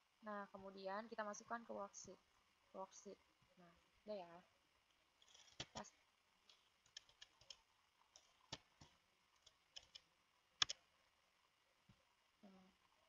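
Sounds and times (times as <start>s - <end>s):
keyboard and mouse clicks: 5.2s - 10.8s.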